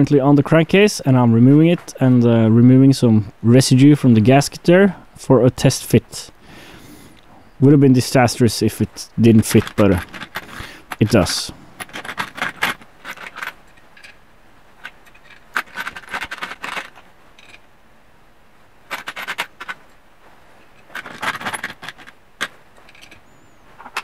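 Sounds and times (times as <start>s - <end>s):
metal clinking and scraping: 9.3s - 14.2s, 14.8s - 17.7s, 18.8s - 20.0s, 20.6s - 24.0s.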